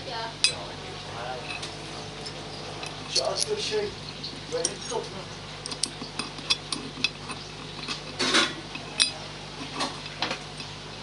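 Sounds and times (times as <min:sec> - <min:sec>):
steady low hum: 0:00.0 - 0:11.0
metal scrape: 0:05.7 - 0:10.7.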